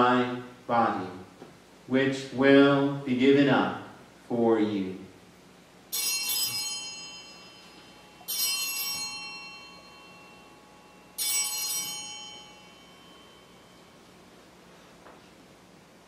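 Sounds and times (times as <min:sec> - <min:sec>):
altar bells ringing: 0:05.9 - 0:14.7.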